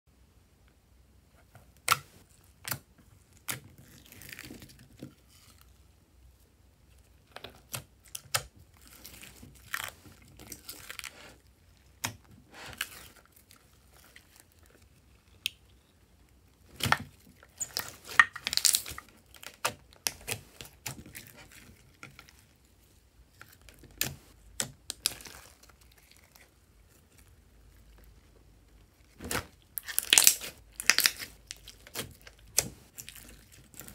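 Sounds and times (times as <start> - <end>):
sticky crackling of slime: 7.3 - 22.7, 23.3 - 33.9.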